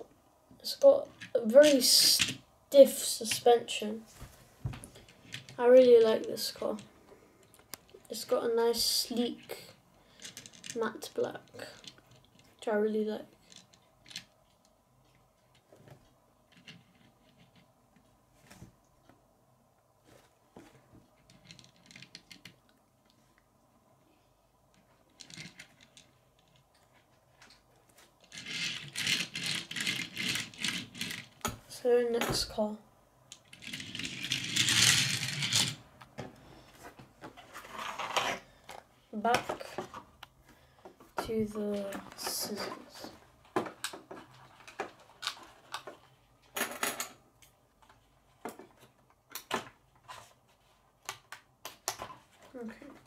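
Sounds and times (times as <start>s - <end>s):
toy car wheels rattling on wood: 25.1s - 26.7s, 28.2s - 31.4s, 33.4s - 35.8s.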